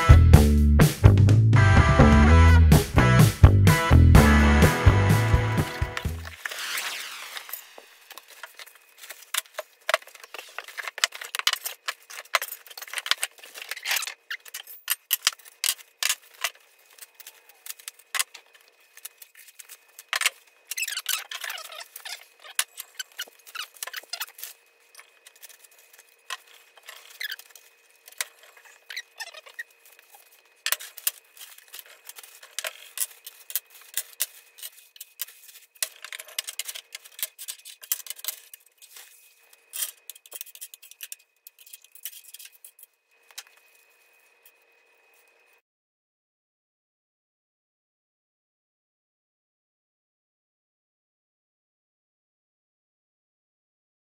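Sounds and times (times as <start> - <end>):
plastic and foam wrapping rustling: 5.4 - 45.6
metal parts clinking on wood: 30.6 - 38.6.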